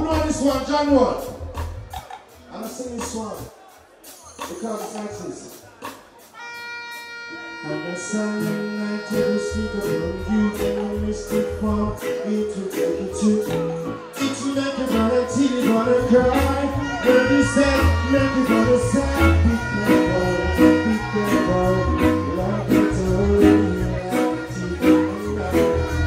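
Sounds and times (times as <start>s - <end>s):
reggae backing music: 0.0s - 26.0s
man singing into microphone: 7.5s - 26.0s.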